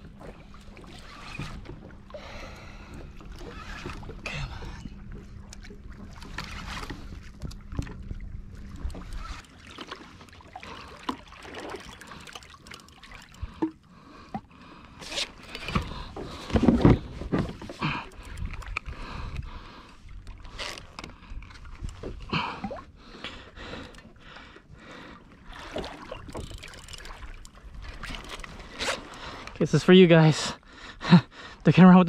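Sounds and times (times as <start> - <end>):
steady low hum: 0.0 - 29.8
water moving around hull: 0.0 - 32.0
knocks and clunks on kayak: 15.5 - 19.4.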